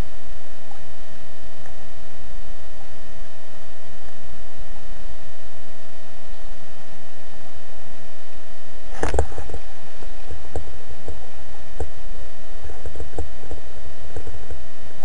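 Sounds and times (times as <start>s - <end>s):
steady hum: 0.0s - 15.0s
constant noisy rush: 8.8s - 15.0s.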